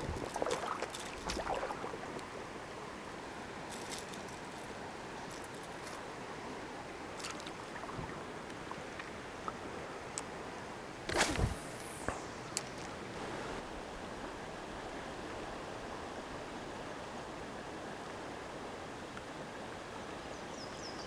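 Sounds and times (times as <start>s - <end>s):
fishing rod swishing: 0.0s - 2.0s, 11.1s - 12.1s
stream water rushing: 0.0s - 12.2s.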